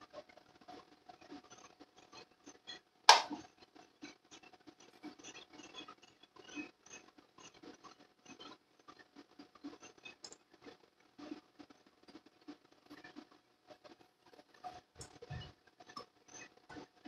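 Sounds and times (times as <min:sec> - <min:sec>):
loud sharp click: 0:03.1 - 0:03.4.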